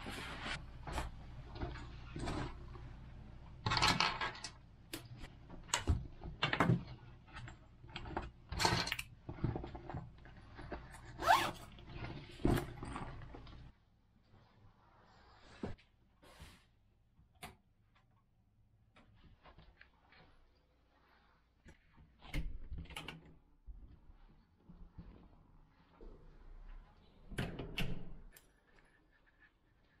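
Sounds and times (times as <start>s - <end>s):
zip pulled shut: 11.2s - 11.7s.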